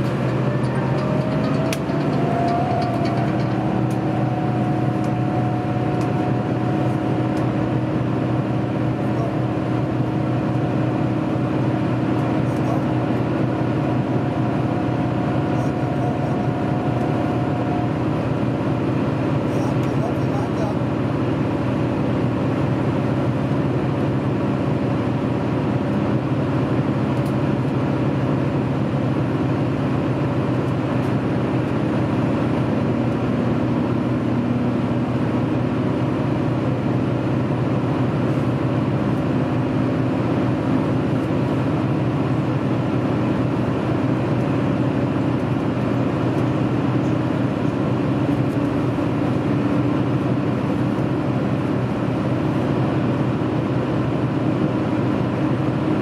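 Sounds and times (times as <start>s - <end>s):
train wheels rushing on rails: 0.0s - 10.2s
low engine drone: 0.0s - 56.0s.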